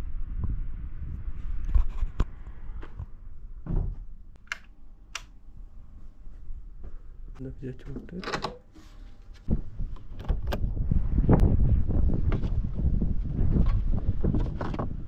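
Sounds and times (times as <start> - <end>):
low rumble: 0.0 - 4.4, 9.4 - 15.0
dull thump: 3.6 - 4.1
knocks and clicks of handling: 7.9 - 8.8.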